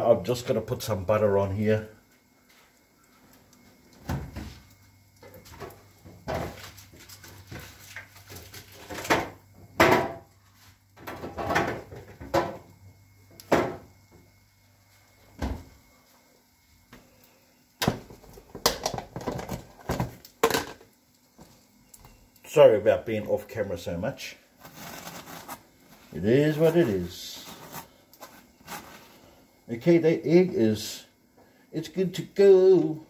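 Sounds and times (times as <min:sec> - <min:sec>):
items knocking and rattling in fridge: 0:04.0 - 0:10.3, 0:11.0 - 0:12.7, 0:13.4 - 0:13.9, 0:15.4 - 0:15.8, 0:17.8 - 0:20.9.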